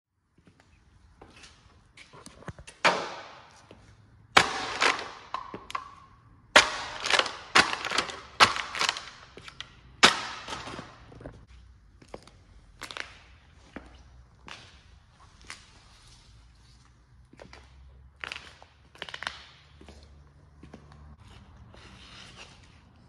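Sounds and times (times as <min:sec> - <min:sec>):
plastic container crushed underfoot: 0:04.4 - 0:05.9, 0:06.6 - 0:11.4.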